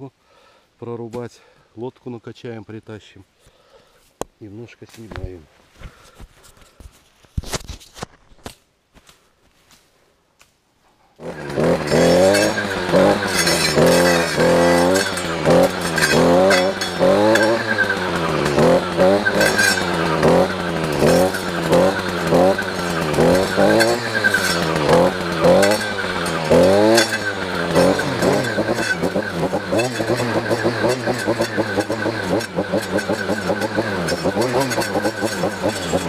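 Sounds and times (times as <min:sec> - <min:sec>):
engine revving up and down: 0:11.2 - 0:36.0.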